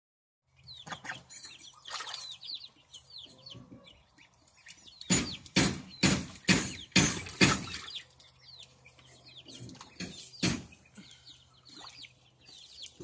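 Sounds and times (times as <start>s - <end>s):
goslings peeping: 0.6s - 13.0s
water splashing in tub: 1.9s - 2.4s.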